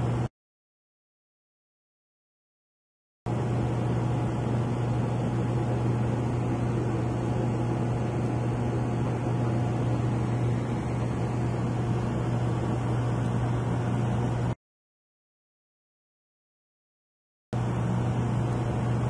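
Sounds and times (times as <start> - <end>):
aquarium air pump humming: 0.0 - 0.3, 3.3 - 14.6, 17.6 - 19.0.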